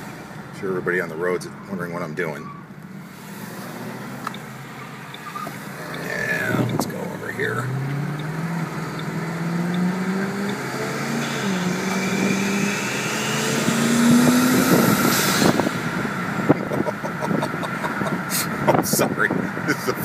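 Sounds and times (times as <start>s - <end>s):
car engine accelerating hard: 2.8s - 20.0s
turbo whine: 4.2s - 18.3s
rush of noise: 5.6s - 7.6s, 10.0s - 19.8s.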